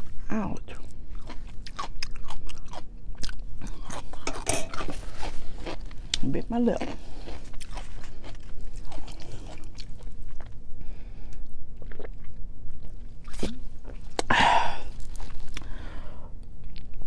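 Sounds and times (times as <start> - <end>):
chewing and swallowing: 0.7 - 10.6, 11.3 - 15.8, 16.4 - 17.0.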